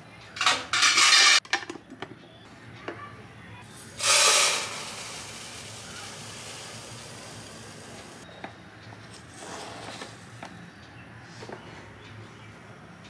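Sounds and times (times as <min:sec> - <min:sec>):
tea leaves pouring into tin: 0:04.0 - 0:08.2.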